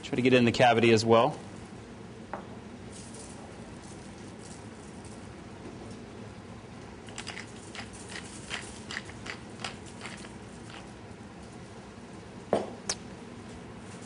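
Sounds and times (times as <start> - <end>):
crunchy clicks of seasoning: 7.0 - 11.5.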